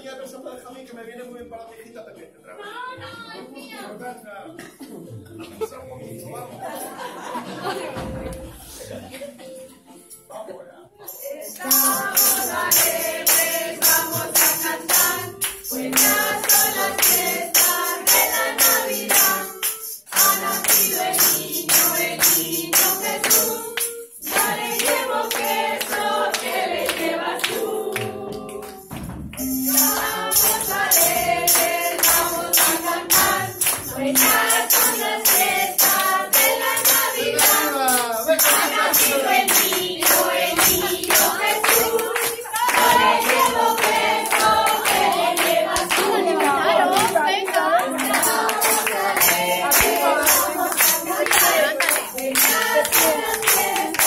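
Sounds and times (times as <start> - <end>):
group singing: 11.1 - 54.0
tambourines shaken and struck: 11.1 - 54.0.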